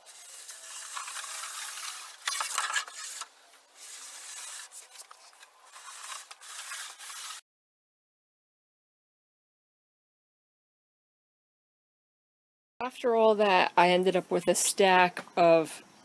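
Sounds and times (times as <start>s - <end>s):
plywood scraping on work table: 0.0s - 7.4s.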